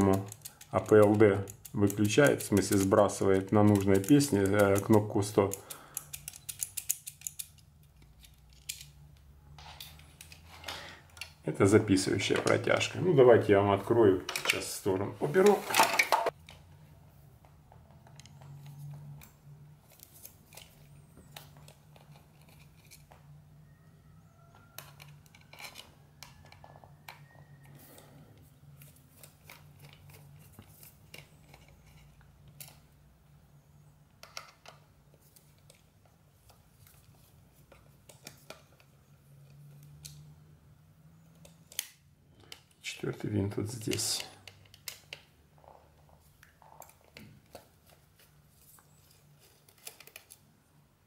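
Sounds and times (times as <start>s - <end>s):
screwdriver clicking on metal screws: 0.0s - 9.0s.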